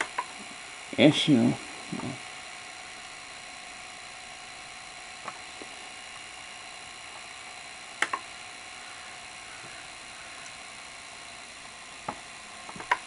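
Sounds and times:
tape transport mechanical whine: 0.0s - 13.0s
small mechanical clicks: 7.0s - 8.4s, 11.6s - 13.0s.

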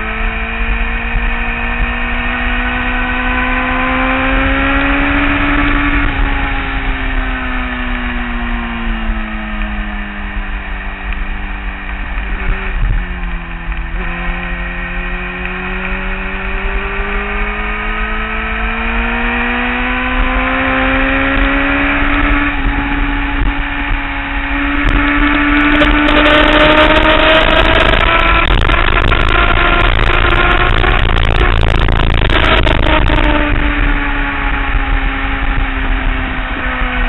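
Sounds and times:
motorcycle engine accelerating: 0.0s - 37.0s
wind rush: 11.3s - 37.0s.

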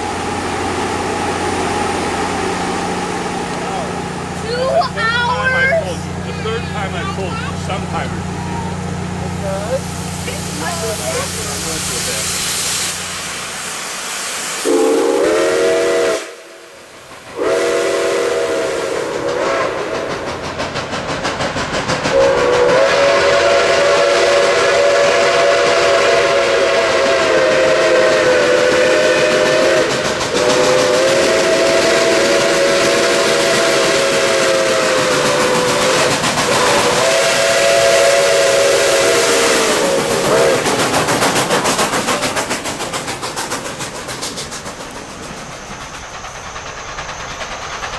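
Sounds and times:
steam hissing: 0.0s - 47.9s
steam locomotive whistle blasts: 14.6s - 16.7s, 17.3s - 20.1s, 22.1s - 40.7s
train wheels clattering: 17.0s - 47.9s.

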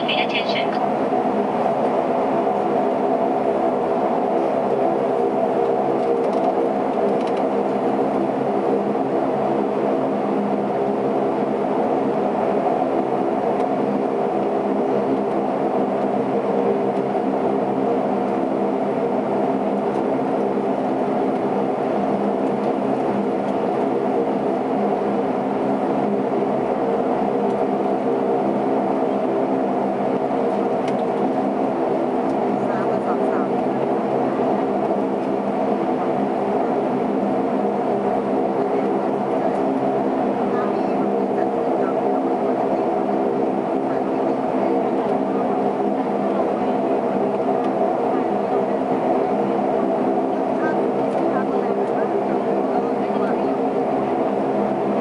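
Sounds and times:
turboprop engines droning: 0.0s - 55.0s.

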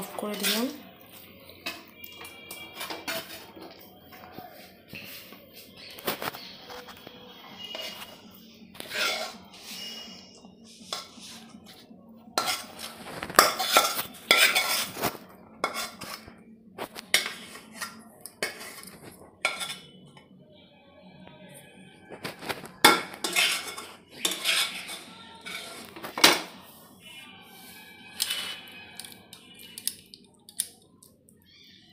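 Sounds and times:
metal spatula scraping metal pan: 0.1s - 0.8s, 1.6s - 3.7s, 7.6s - 8.2s, 8.8s - 11.6s, 12.4s - 16.4s, 17.0s - 20.0s, 22.8s - 26.6s, 27.5s - 29.1s.

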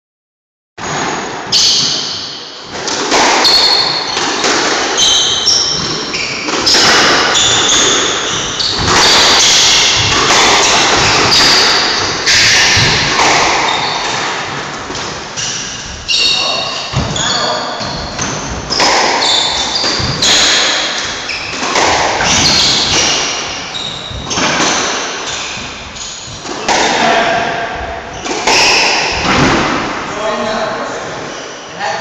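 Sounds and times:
shoes squeaking on wooden floor: 3.4s - 26.9s.

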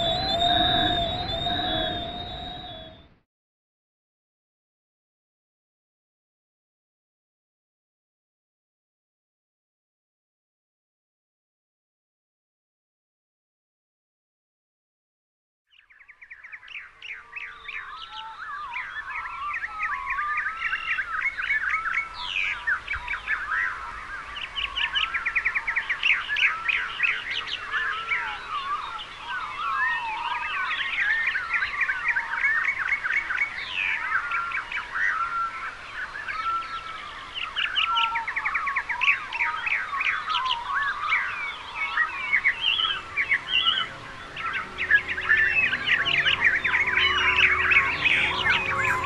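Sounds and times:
many birds chirping: 0.0s - 3.0s, 16.2s - 49.0s.

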